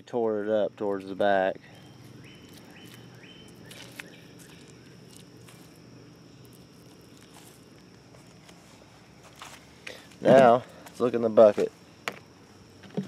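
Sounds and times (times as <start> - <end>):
hands moving watermelon pieces: 1.9 - 12.2.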